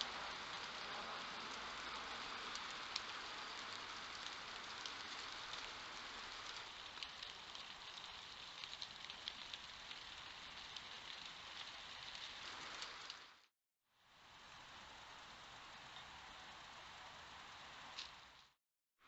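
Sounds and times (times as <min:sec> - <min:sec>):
microphone hiss: 0:00.0 - 0:07.0
faint crackles: 0:00.0 - 0:13.5, 0:14.4 - 0:18.6.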